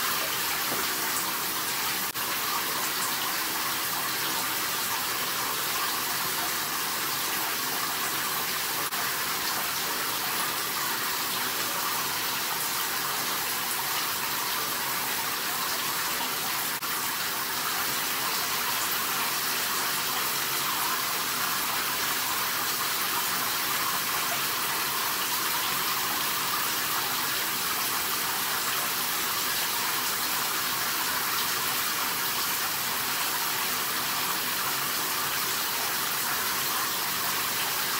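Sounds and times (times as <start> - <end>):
running water hiss: 0.0 - 37.9.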